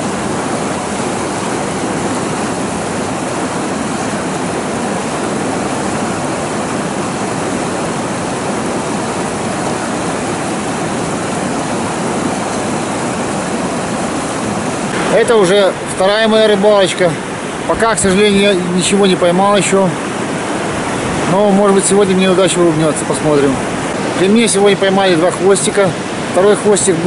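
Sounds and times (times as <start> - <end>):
river water rushing over rapids: 0.0 - 27.0.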